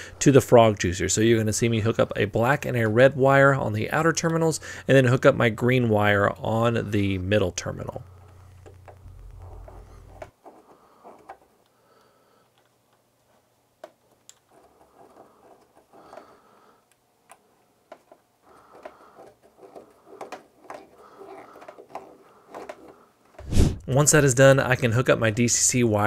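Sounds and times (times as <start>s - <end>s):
low hum: 8.0s - 10.3s.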